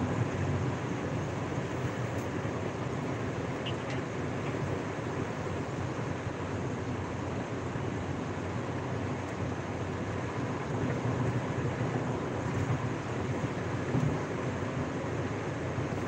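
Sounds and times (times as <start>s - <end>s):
car cabin road noise: 0.0s - 16.0s.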